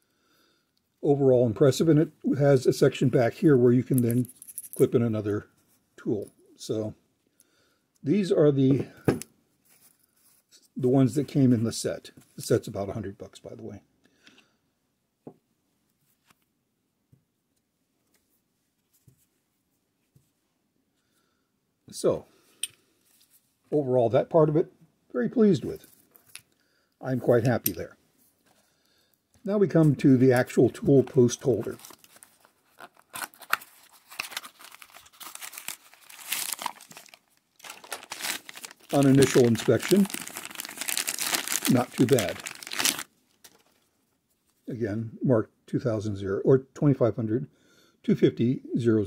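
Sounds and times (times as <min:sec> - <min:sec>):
paper tearing and crinkling: 0:31.2 - 0:43.7.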